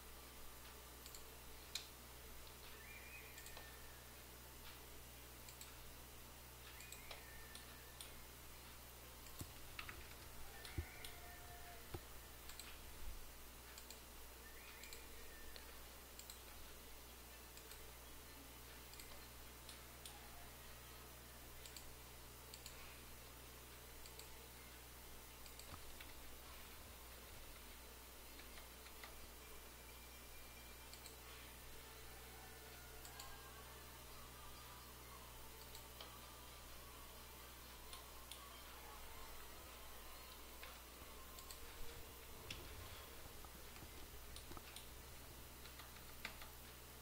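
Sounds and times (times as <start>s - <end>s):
low steady hum: 0.0s - 47.0s
computer mouse clicks: 0.6s - 3.9s, 4.6s - 5.8s, 6.6s - 13.0s, 13.6s - 16.8s, 17.5s - 18.0s, 18.6s - 20.4s, 21.6s - 23.0s, 24.0s - 24.5s, 25.3s - 29.4s, 30.8s - 31.6s, 32.6s - 33.6s, 35.5s - 36.3s, 40.2s - 46.8s.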